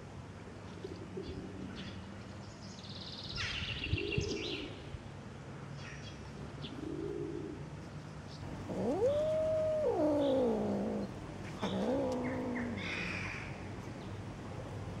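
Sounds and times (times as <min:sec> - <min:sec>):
cat yowling: 0:08.5 - 0:13.4.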